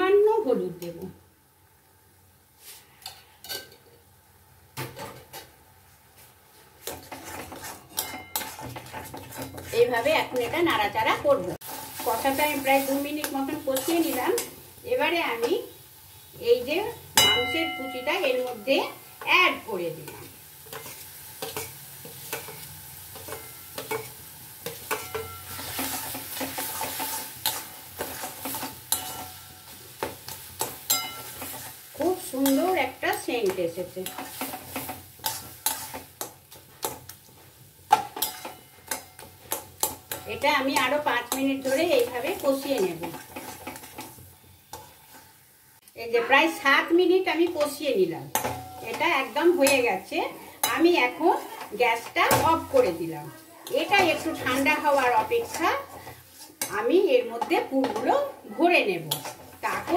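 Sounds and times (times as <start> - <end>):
food sizzling: 0.0 - 59.9
spatula scraping metal pan: 6.8 - 10.5, 20.0 - 37.1, 37.9 - 45.4, 53.6 - 58.2, 59.0 - 59.9.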